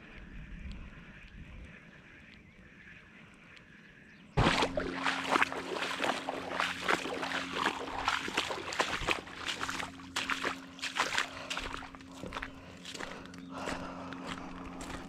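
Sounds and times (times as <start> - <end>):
footsteps crunching on wet gravel: 4.4 - 15.0
footsteps splashing through puddles: 4.4 - 15.0.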